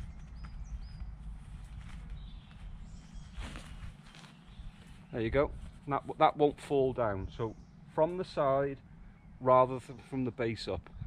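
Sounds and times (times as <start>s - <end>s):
wind rumble on microphone: 0.0s - 5.8s, 10.6s - 11.0s
tent fabric rustling: 1.4s - 5.1s.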